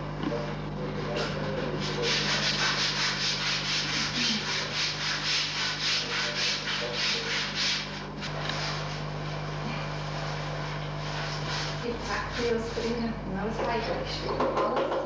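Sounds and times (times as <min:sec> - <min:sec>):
brush scrubbing wooden boards: 0:01.8 - 0:07.9.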